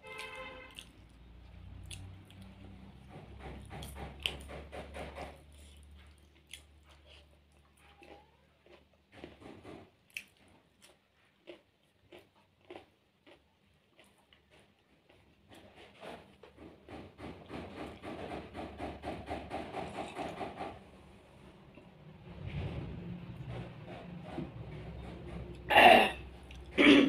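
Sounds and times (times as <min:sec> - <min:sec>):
person chewing with wet smacks: 0:00.0 - 0:03.1, 0:05.2 - 0:15.8, 0:26.2 - 0:26.8.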